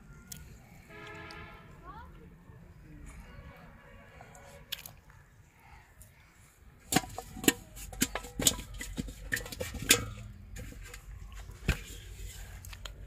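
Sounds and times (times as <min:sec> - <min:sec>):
fish thrashing in metal pot: 0:06.8 - 0:12.2.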